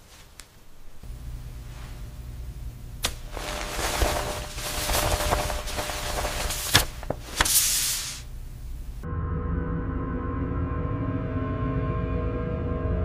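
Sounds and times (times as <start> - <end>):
banknotes rustling: 3.0 - 8.3
dark music drone: 9.0 - 13.0.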